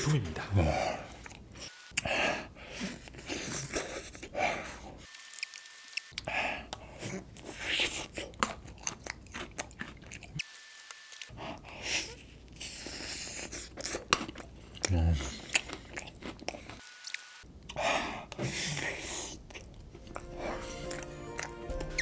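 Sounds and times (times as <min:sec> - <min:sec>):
crunchy chewing: 0:05.2 - 0:11.3, 0:12.1 - 0:17.3, 0:18.8 - 0:22.0.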